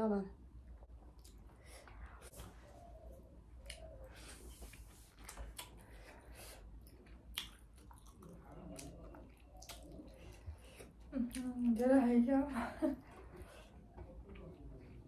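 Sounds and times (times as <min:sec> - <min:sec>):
person chewing: 0:01.1 - 0:01.5, 0:03.6 - 0:11.8
wet mouth smacks: 0:07.3 - 0:10.0.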